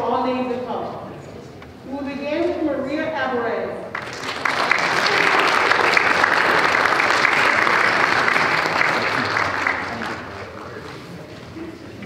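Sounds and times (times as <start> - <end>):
audience applauding: 3.9 - 11.2.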